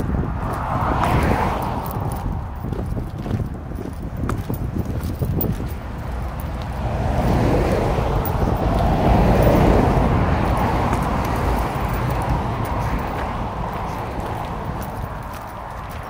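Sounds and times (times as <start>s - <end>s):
car passing by: 0.0s - 2.7s, 5.8s - 16.0s
wind rumble on microphone: 0.0s - 16.0s.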